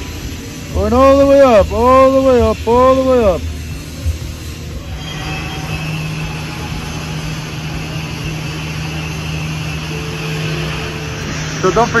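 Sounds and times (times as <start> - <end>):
steady low hum: 0.0 - 12.0
welding arc hissing: 0.0 - 12.0.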